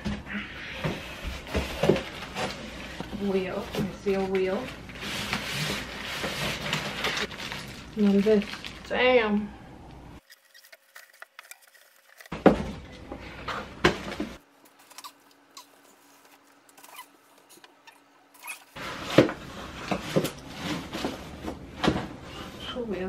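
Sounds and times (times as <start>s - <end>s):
cardboard and plastic rustling: 0.9s - 9.1s, 10.2s - 17.7s, 18.4s - 22.6s.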